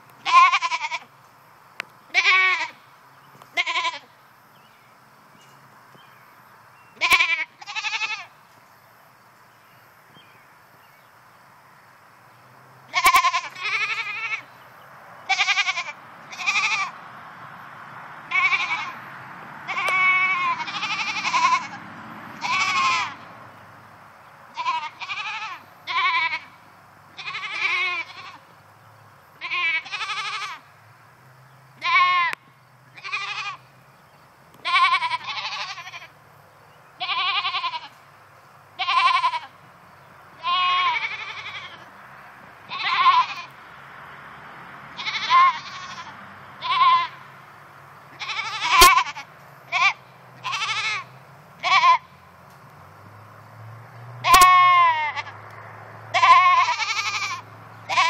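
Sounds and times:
goats bleating: 0.2 - 1.1, 2.1 - 2.8, 3.6 - 4.1, 7.0 - 8.3, 12.9 - 14.5, 15.3 - 17.0, 18.3 - 19.0, 19.7 - 21.8, 22.4 - 23.2, 24.6 - 26.6, 27.2 - 28.4, 29.4 - 30.6, 31.8 - 32.4, 33.0 - 33.6, 34.6 - 36.1, 37.0 - 37.9, 38.8 - 39.5, 40.4 - 41.9, 42.7 - 43.5, 45.0 - 47.2, 48.1 - 52.1, 54.2 - 55.3, 56.1 - 58.0.

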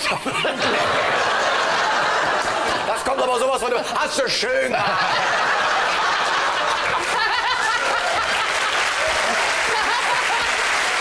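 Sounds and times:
audience laughing: 0.0 - 11.0
audience applauding: 5.1 - 11.0.

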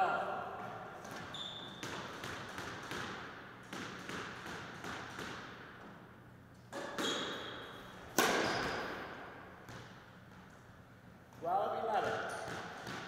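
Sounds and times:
squash ball cracking off walls: 1.1 - 5.7, 6.7 - 10.0, 12.0 - 13.0
shoe squeak: 1.2 - 2.1, 6.9 - 7.7, 8.4 - 9.0.

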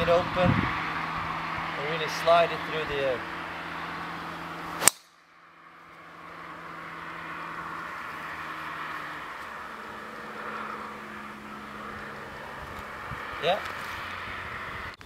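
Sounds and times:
steady outdoor hiss: 0.0 - 15.0
golf club striking ball: 3.8 - 5.2.

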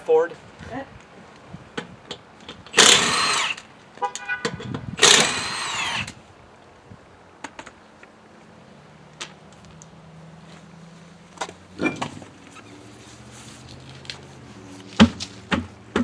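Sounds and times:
power tool whine: 2.8 - 3.6, 5.0 - 6.2.

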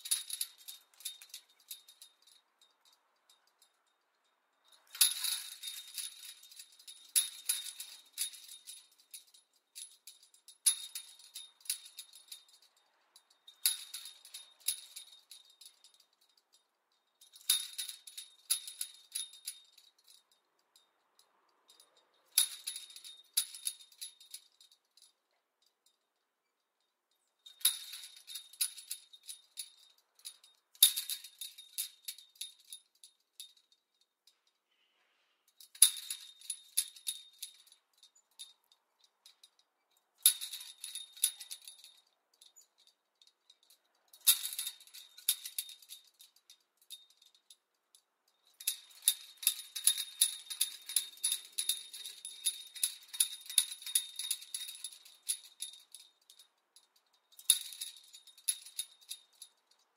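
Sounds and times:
chain link fence rattling: 0.0 - 34.7, 35.4 - 59.9.

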